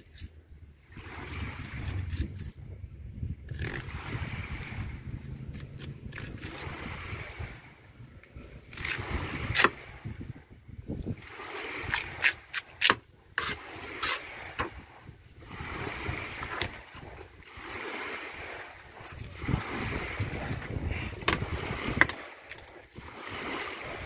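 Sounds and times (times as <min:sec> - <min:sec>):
knife cutting and scraping fish: 0:00.0 - 0:00.4, 0:01.2 - 0:02.6, 0:03.4 - 0:04.2, 0:05.2 - 0:06.8, 0:08.4 - 0:09.9, 0:11.3 - 0:15.1, 0:15.8 - 0:19.8.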